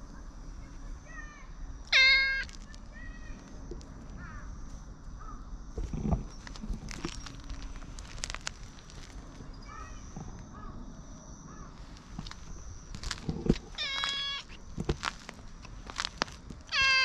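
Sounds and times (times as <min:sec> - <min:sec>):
cat meowing: 0:01.9 - 0:02.5, 0:13.8 - 0:14.6, 0:16.7 - 0:17.0.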